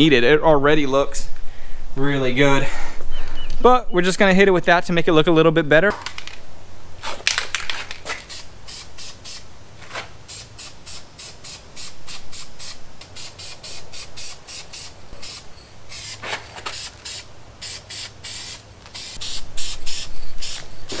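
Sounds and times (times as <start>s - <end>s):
spray paint can hissing in bursts: 8.0s - 9.5s, 10.1s - 21.0s.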